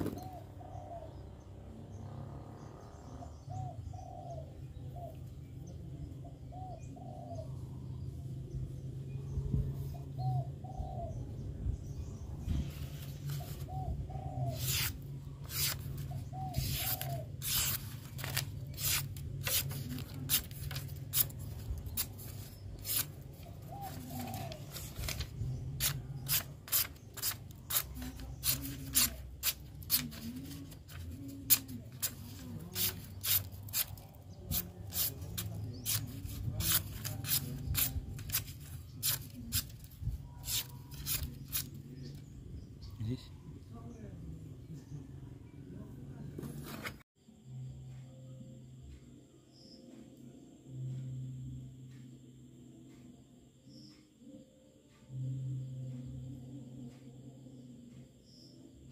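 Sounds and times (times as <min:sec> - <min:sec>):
pigeons cooing: 0:00.0 - 0:01.5, 0:06.5 - 0:07.7, 0:10.2 - 0:11.2, 0:13.4 - 0:17.8, 0:22.9 - 0:25.4
rubbing strokes on knife blade: 0:14.5 - 0:41.8.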